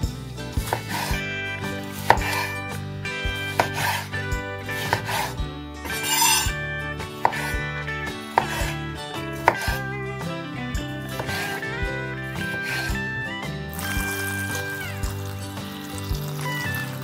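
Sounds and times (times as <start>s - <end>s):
soft background music: 0.0s - 17.0s
knife chopping on cutting board: 0.6s - 1.2s, 1.8s - 2.7s, 3.4s - 4.1s, 4.7s - 6.6s, 7.2s - 9.9s, 11.1s - 13.1s.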